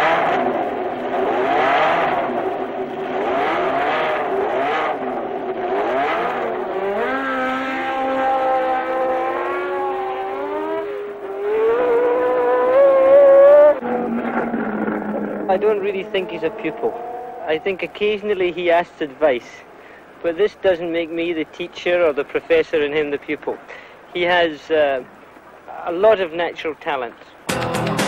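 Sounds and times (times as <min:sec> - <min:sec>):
racing engine revving: 0:00.0 - 0:18.3.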